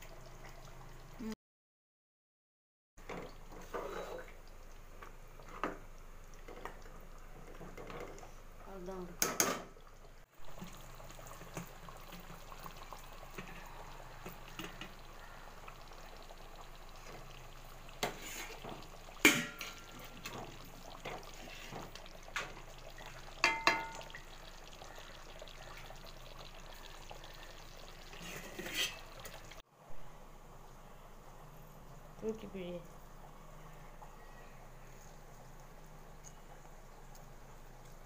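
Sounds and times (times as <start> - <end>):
curry bubbling in pot: 3.0 - 38.0
ladle clinking against pot: 23.4 - 24.1.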